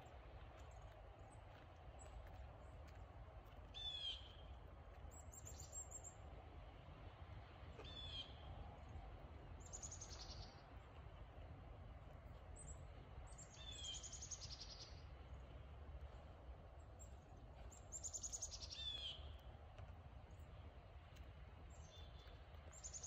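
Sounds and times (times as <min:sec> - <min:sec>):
faint low outdoor rumble: 0:00.0 - 0:23.0
small birds chirping: 0:09.6 - 0:10.9, 0:12.3 - 0:15.6, 0:16.8 - 0:19.6, 0:20.2 - 0:23.0.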